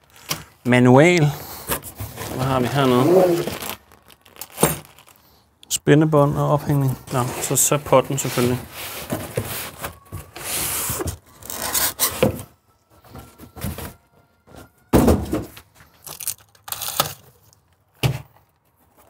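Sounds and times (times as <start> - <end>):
rustling and tearing packaging: 1.5 - 5.4, 7.0 - 12.3, 15.8 - 17.8.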